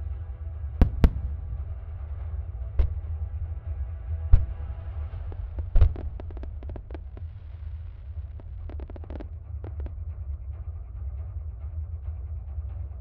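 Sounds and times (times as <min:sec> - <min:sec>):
fireworks deep boom: 0:00.8 - 0:02.0, 0:04.2 - 0:09.9
fireworks cracks and pops: 0:05.2 - 0:09.9.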